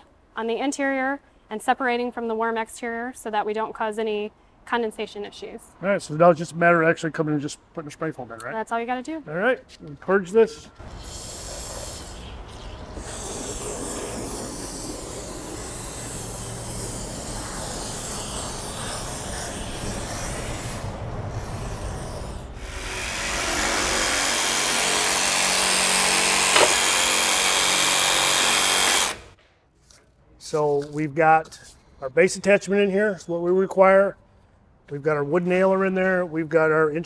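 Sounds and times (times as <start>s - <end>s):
spray foam gun hissing: 10.8s - 29.2s
reciprocating saw running: 10.8s - 29.4s.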